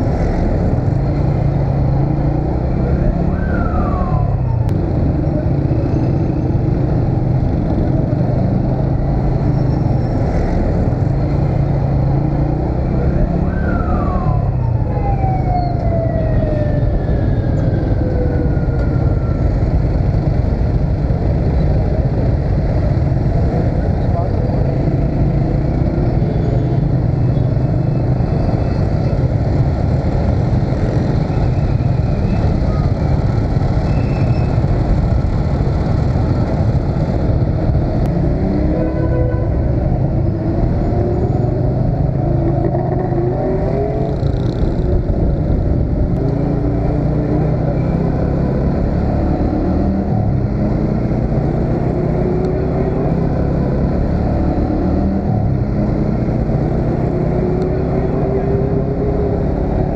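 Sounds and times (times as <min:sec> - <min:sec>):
wind rumble on microphone: 0:00.0 - 0:59.9.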